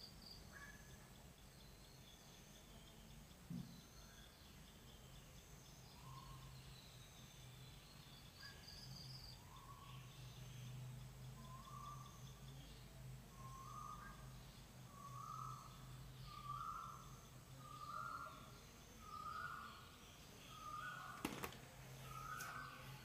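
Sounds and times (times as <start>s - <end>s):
faint bird calls: 0.0s - 4.5s, 8.2s - 23.0s
soft knock: 3.5s - 3.8s.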